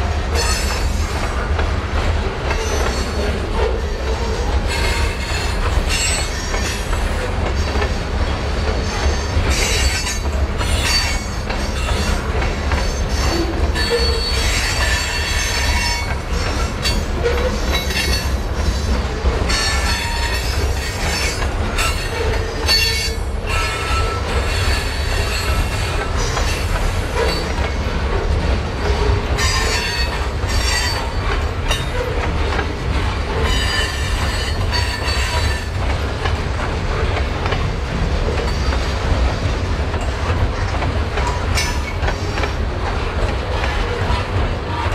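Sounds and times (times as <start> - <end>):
train low rumble: 0.0 - 44.9
train wheels squealing: 0.4 - 1.2, 2.5 - 7.8, 8.7 - 18.9, 19.5 - 27.7, 28.9 - 32.3, 33.3 - 35.8.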